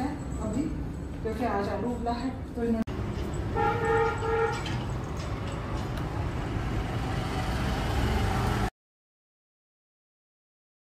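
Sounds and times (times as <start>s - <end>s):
low rumble of street traffic: 0.0s - 8.7s
vehicle horn tooting: 3.5s - 4.9s.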